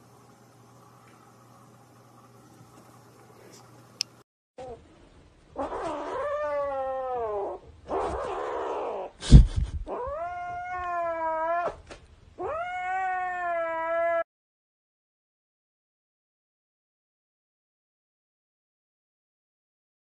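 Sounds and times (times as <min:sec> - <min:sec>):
young animal crying: 0:05.6 - 0:09.2, 0:09.8 - 0:11.8, 0:12.4 - 0:14.3.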